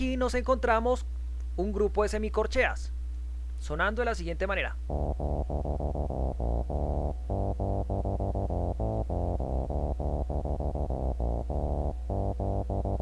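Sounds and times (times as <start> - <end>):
synthesizer bass line: 4.9 - 13.0.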